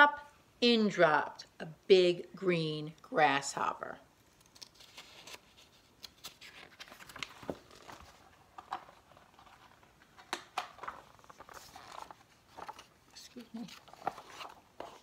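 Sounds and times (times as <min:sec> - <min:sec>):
paper rustling: 0:04.3 - 0:15.0.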